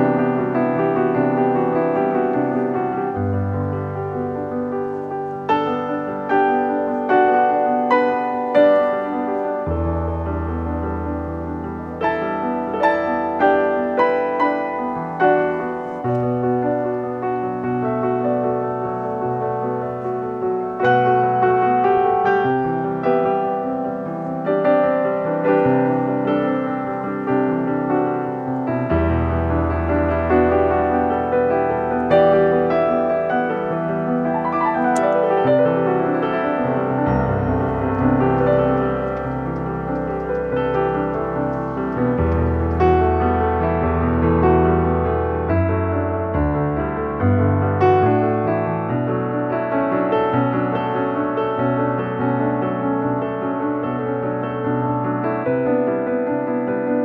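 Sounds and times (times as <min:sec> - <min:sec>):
piano music: 0:00.0 - 0:57.0.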